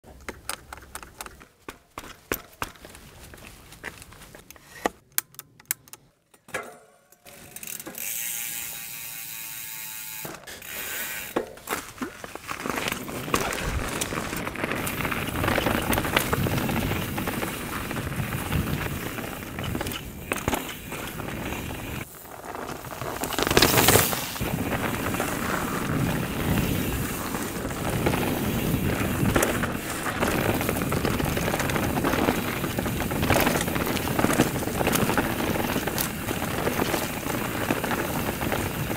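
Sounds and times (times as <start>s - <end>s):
bike tyres rolling over dirt: 0.1s - 4.8s, 7.3s - 38.9s.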